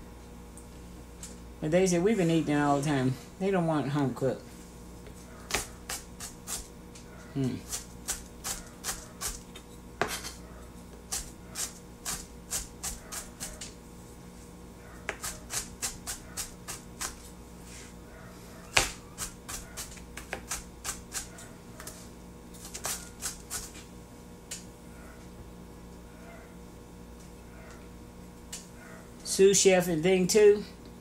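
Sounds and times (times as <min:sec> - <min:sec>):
knife chopping on board: 0:05.5 - 0:06.6, 0:15.1 - 0:17.2, 0:18.7 - 0:21.3.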